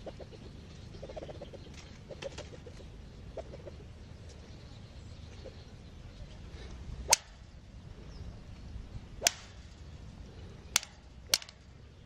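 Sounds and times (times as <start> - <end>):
low clucking calls: 0.0 - 4.5.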